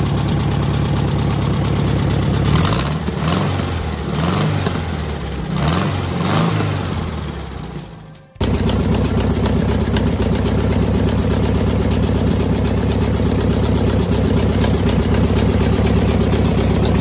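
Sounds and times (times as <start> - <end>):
car engine idling with rapid ticking: 0.0 - 17.0.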